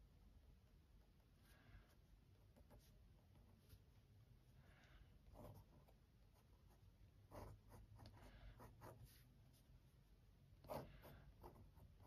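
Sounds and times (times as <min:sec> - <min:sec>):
fountain pen scratching on paper: 0:05.3 - 0:09.3, 0:10.6 - 0:12.0.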